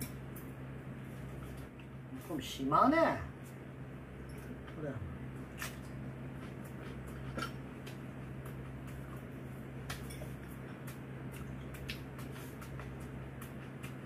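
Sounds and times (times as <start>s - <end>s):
chewing: 5.5s - 14.0s.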